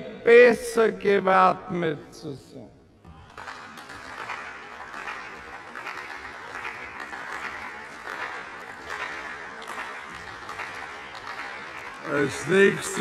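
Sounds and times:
slowed down applause: 0:03.2 - 0:13.0.

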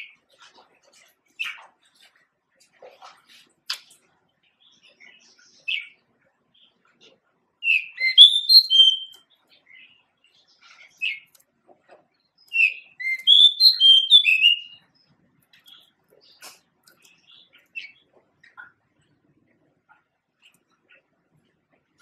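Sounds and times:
bird singing whistled notes: 0:07.6 - 0:09.2, 0:12.5 - 0:14.8.

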